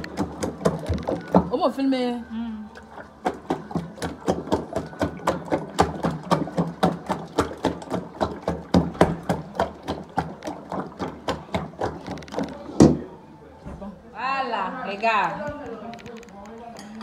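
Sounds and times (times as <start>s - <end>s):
liquid sloshing: 0.0s - 13.3s
stick knocking in metal pot: 3.2s - 13.0s.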